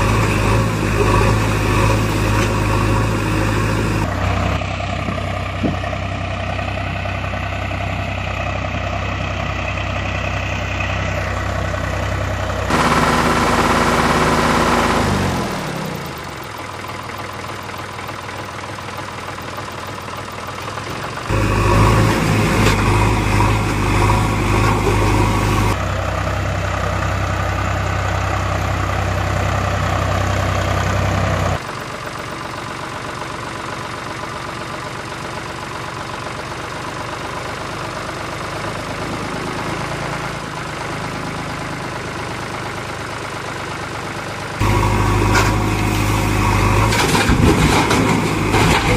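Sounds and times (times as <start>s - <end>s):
truck engine running: 0.0s - 48.9s.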